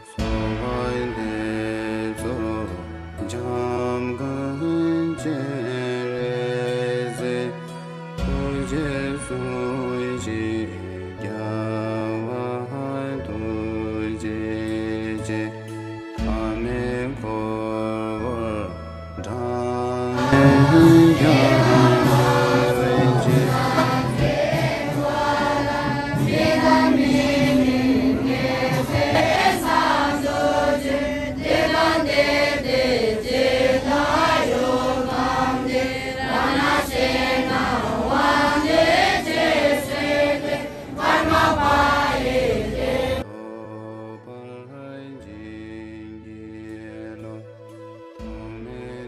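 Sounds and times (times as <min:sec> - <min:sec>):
music of held notes: 0:20.2 - 0:43.0
monks chanting together: 0:20.2 - 0:43.3.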